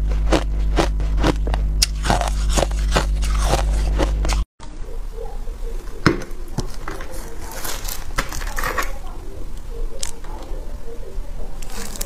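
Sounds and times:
crunching ice: 0:00.0 - 0:04.4, 0:06.6 - 0:09.0, 0:11.6 - 0:12.0.

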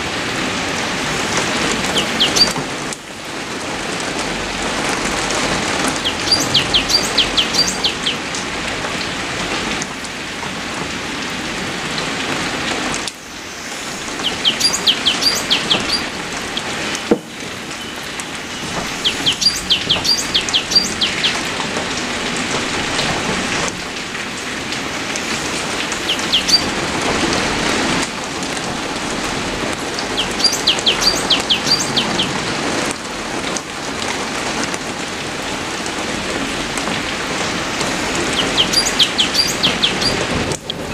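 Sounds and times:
steady rain falling: 0:00.0 - 0:40.9
small bird chirping: 0:01.9 - 0:02.6, 0:06.0 - 0:08.2, 0:14.1 - 0:16.6, 0:17.8 - 0:21.4, 0:26.0 - 0:26.8, 0:30.2 - 0:32.3, 0:38.3 - 0:40.9.

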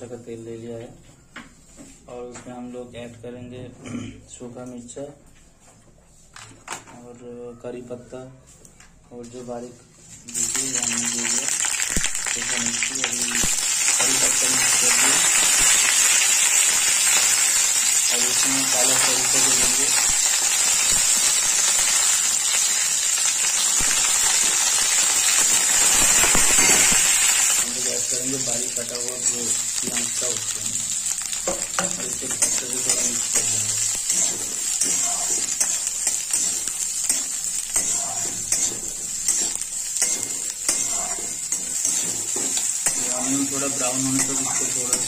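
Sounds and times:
oil sizzling with spices: 0:09.5 - 0:45.0
metal spatula scraping pan: 0:32.2 - 0:45.0.

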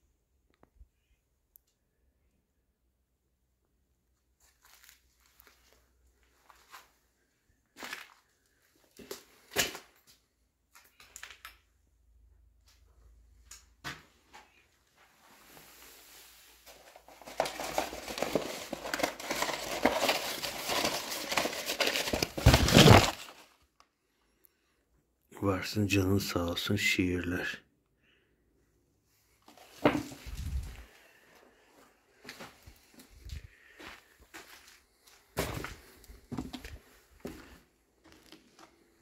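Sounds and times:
paper crinkling and rustling: 0:16.5 - 0:23.6, 0:29.4 - 0:31.0
crunches on rubble: 0:16.8 - 0:23.4.

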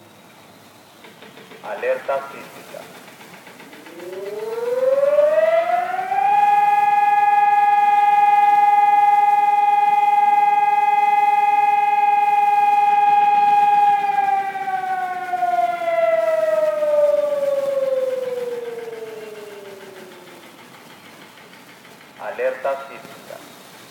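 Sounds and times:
siren winding down: 0:03.8 - 0:20.9.

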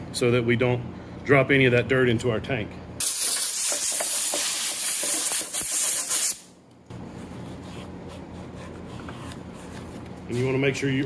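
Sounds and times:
air blow gun hissing: 0:03.0 - 0:06.5.

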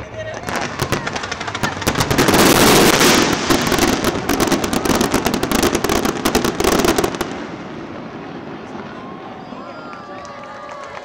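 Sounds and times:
fireworks bursting and crackling: 0:00.0 - 0:11.0.

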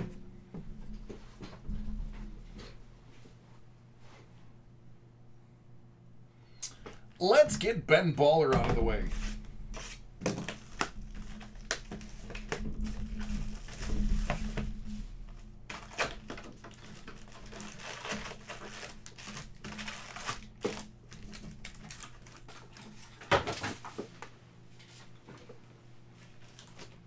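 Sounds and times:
cellophane crinkling and tearing: 0:09.8 - 0:14.4, 0:15.4 - 0:23.9, 0:26.4 - 0:27.0
foil packs clicking and tapping: 0:09.8 - 0:24.4, 0:26.4 - 0:27.0.

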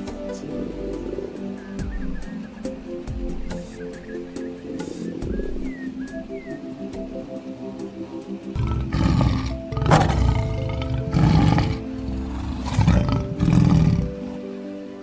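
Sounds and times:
background music with sustained notes: 0:00.0 - 0:15.0
deep animal roars: 0:08.6 - 0:14.4.

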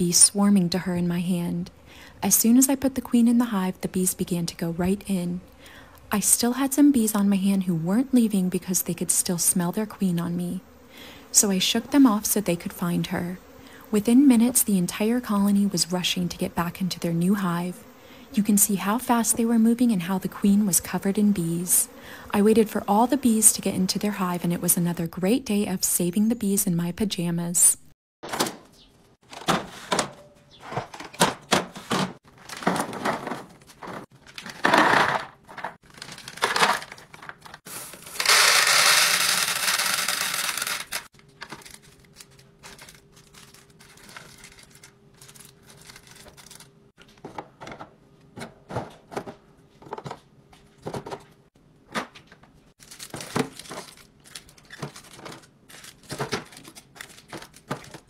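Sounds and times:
snacks and cans clacking into bins: 0:29.2 - 0:38.4, 0:51.9 - 0:58.0
plastic packaging crinkling: 0:35.8 - 0:46.8, 0:52.8 - 0:58.0.

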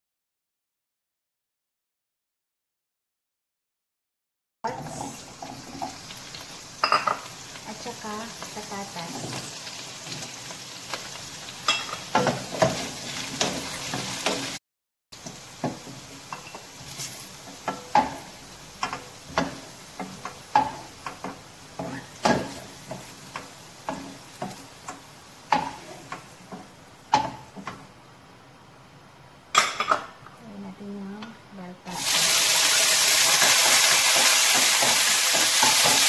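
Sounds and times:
vegetables sizzling in hot oil: 0:04.7 - 0:14.6, 0:15.2 - 0:27.9, 0:31.9 - 0:36.0
spatula scraping and knocking pan: 0:11.7 - 0:14.6, 0:15.2 - 0:27.9, 0:33.3 - 0:36.0.

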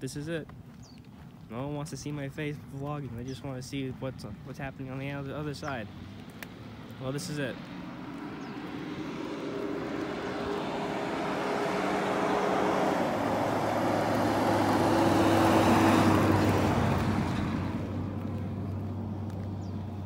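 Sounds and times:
vehicle passing by: 0:04.8 - 0:20.0.

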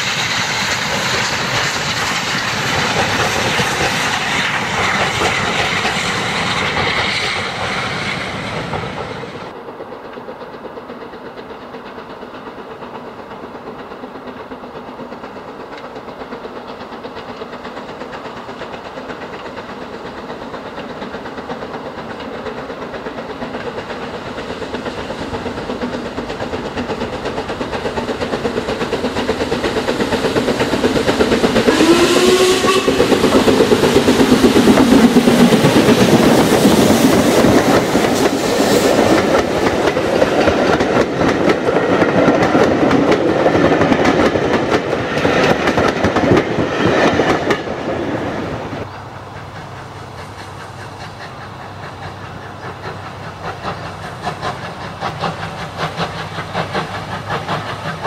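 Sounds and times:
steam train passing: 0:00.0 - 0:58.0
steam whistle: 0:31.7 - 0:33.4.

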